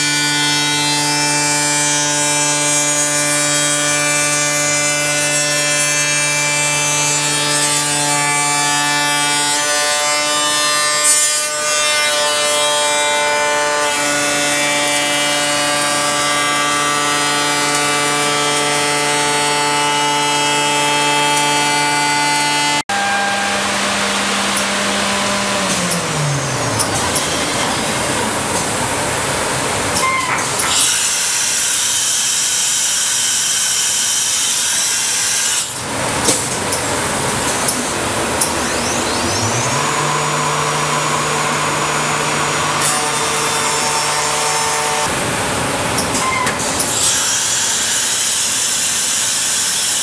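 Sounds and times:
router spindle whine: 0:13.9 - 0:50.0.

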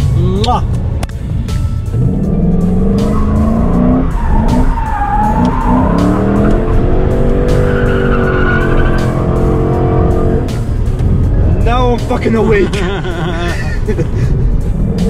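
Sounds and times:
car engine revving hard: 0:02.0 - 0:10.6
tyres squealing: 0:03.0 - 0:10.3.

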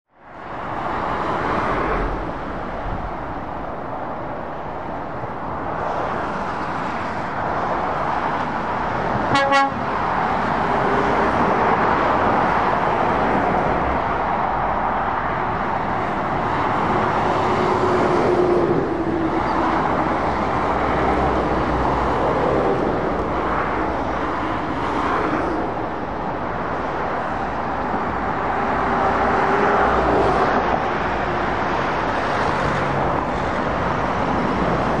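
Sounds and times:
motorway traffic passing: 0:00.1 - 0:35.0
heavy vehicle engine drone: 0:00.4 - 0:35.0
vehicle horn toot: 0:09.3 - 0:09.8.

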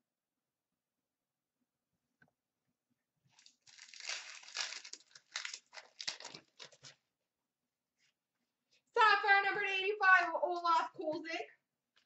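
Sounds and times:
foil wrapper tearing and crinkling: 0:03.4 - 0:07.0.

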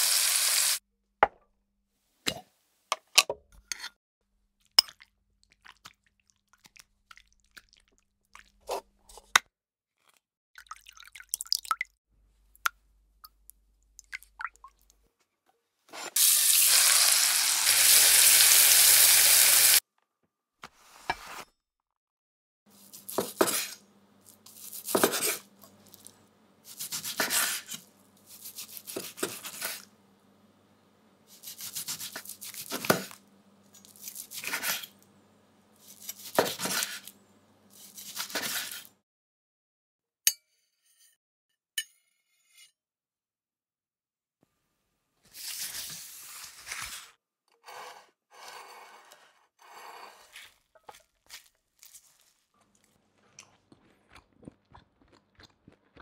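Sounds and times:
loud sizzling hiss: 0:00.0 - 0:00.8, 0:16.2 - 0:19.8.

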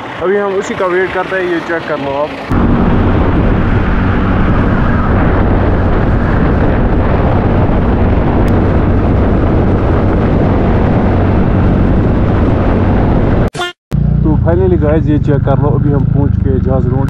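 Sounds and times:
wind rushing over camera: 0:02.4 - 0:13.5.

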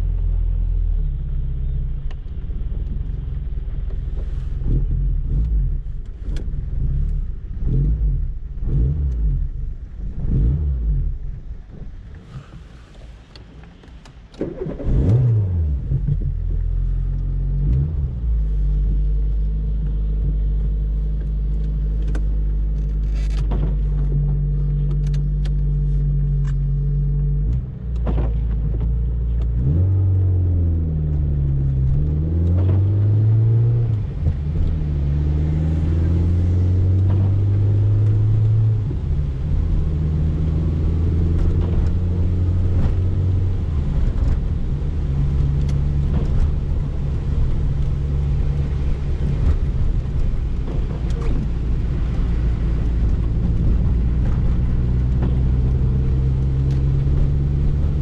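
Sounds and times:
car engine from inside cabin: 0:00.0 - 0:58.0.

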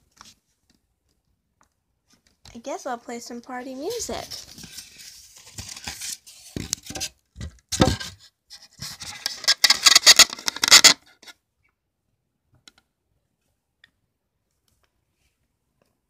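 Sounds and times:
camera handling scratching: 0:09.0 - 0:11.0.

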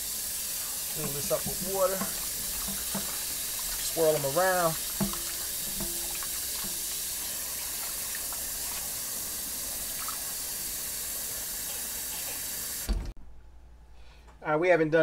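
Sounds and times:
faucet running into water: 0:00.0 - 0:12.9
hands swirling meat in water: 0:00.9 - 0:10.4.

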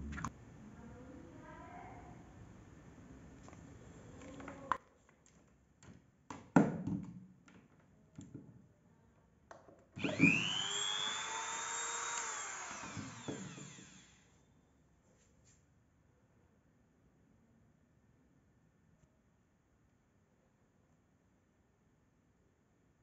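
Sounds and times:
rotary tool motor whine: 0:10.0 - 0:14.4.

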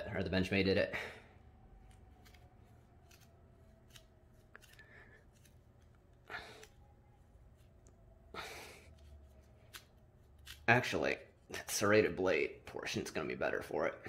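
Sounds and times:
blade rasping through rope: 0:01.9 - 0:06.8, 0:08.9 - 0:10.8.

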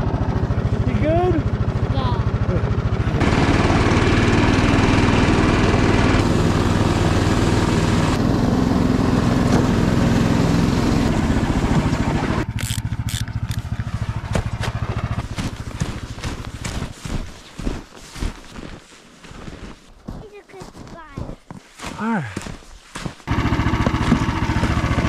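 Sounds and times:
snow machine engine running: 0:00.0 - 0:18.5, 0:23.2 - 0:25.0
footsteps crunching in snow: 0:13.5 - 0:24.9.

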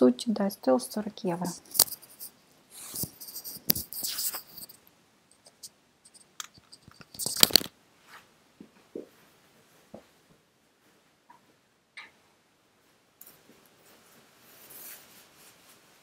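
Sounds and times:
microphone handling rustle: 0:01.5 - 0:04.8.

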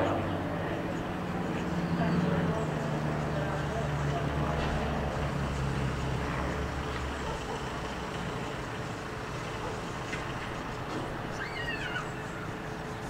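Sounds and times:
propeller aircraft droning: 0:00.0 - 0:13.0
bird calling: 0:07.1 - 0:13.0.

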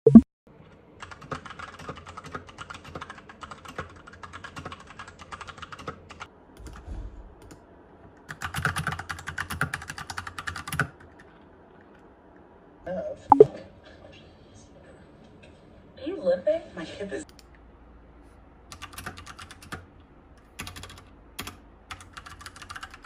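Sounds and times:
mechanical keyboard typing: 0:01.0 - 0:06.8, 0:08.3 - 0:11.3, 0:18.7 - 0:19.8, 0:20.6 - 0:23.0.

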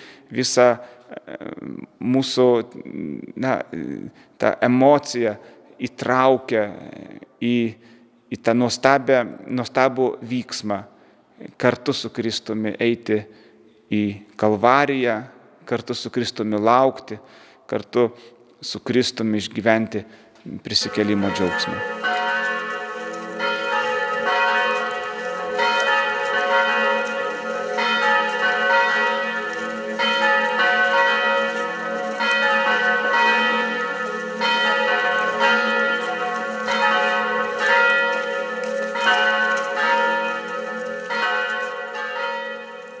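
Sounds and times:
church bells ringing: 0:20.7 - 0:43.0.

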